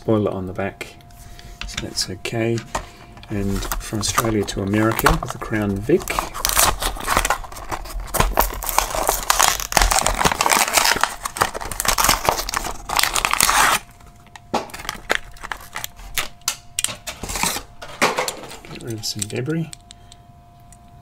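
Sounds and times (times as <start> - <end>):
packaging tearing and crinkling: 3.4 - 19.4.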